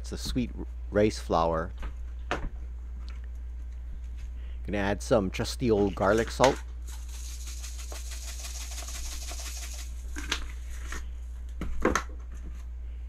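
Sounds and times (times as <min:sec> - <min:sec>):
salt grains rattling through shaker: 0:06.0 - 0:10.2.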